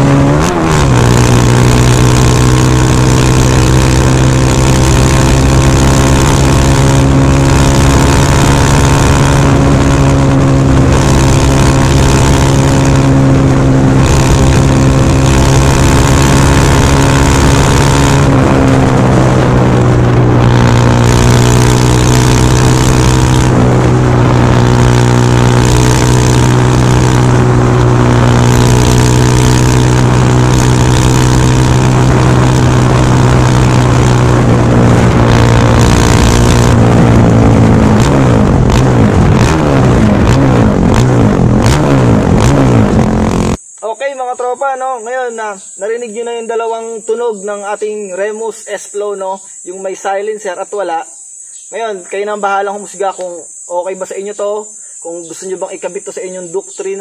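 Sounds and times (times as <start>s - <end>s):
motorcycle engine running: 0.0s - 43.8s.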